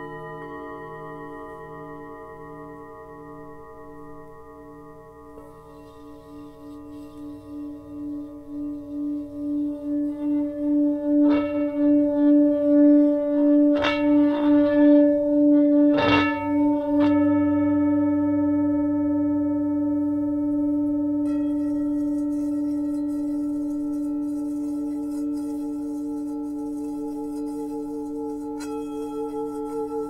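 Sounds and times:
singing bowl humming: 0:00.0 - 0:30.0
singing bowl struck notes: 0:00.0 - 0:30.0
smaller bowl struck high tone: 0:00.0 - 0:30.0.

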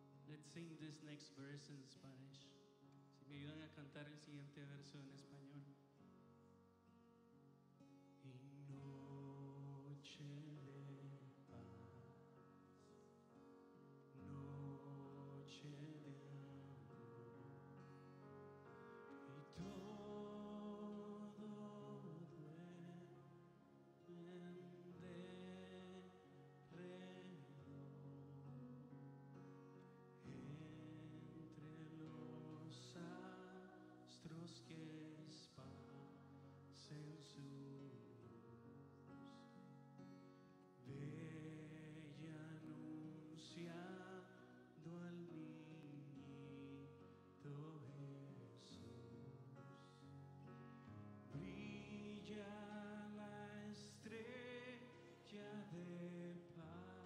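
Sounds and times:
quiet instrumental accompaniment: 0:00.0 - 0:57.0
person singing a slow hymn: 0:08.2 - 0:12.0, 0:14.1 - 0:17.4, 0:19.1 - 0:28.7, 0:30.2 - 0:38.4, 0:40.8 - 0:50.0, 0:51.3 - 0:57.0.

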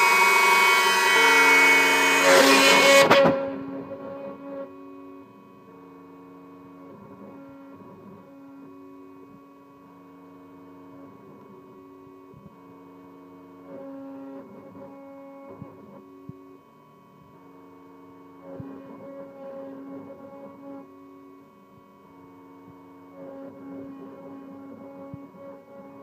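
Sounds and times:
stepper motor tones: 0:00.0 - 0:12.4
router spindle whine: 0:00.0 - 0:26.0.

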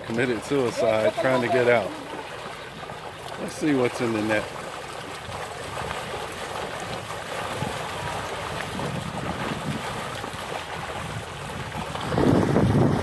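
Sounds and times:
pond water sloshing: 0:00.0 - 0:13.0
wind buffeting microphone: 0:05.2 - 0:13.0.

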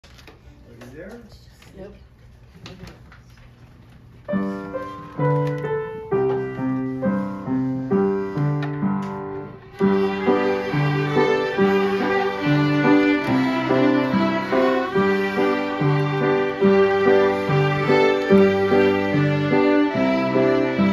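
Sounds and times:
fiddles playing melody: 0:09.7 - 0:20.9.

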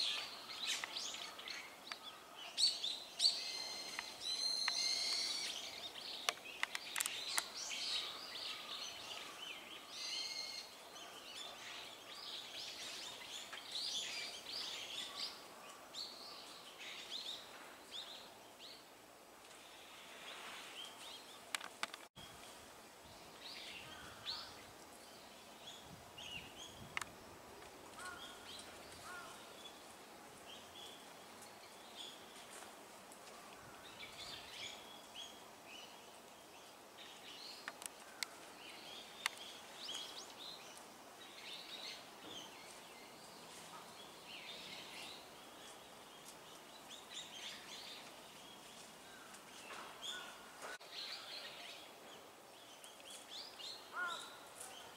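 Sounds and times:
magpies calling and chirping: 0:00.0 - 0:11.8.

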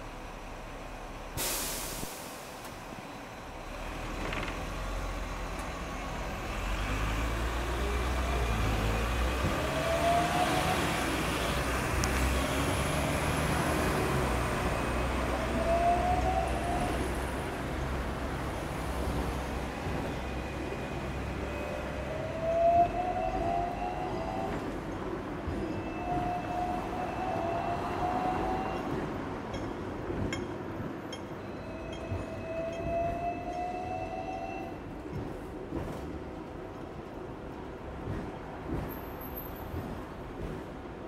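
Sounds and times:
bus engine rumble: 0:00.0 - 0:41.0
sharp hiss of air: 0:01.4 - 0:02.6
tram motors whining: 0:07.3 - 0:29.3.

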